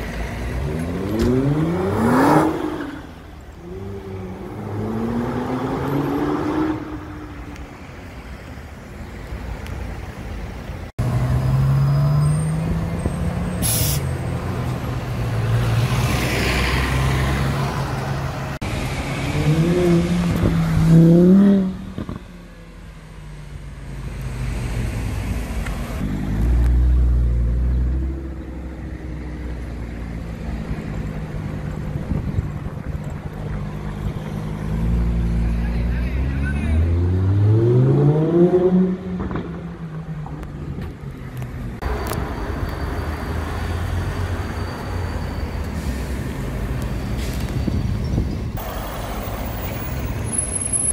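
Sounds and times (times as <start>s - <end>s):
sports car engines accelerating: 0.1s - 7.6s, 11.0s - 42.6s.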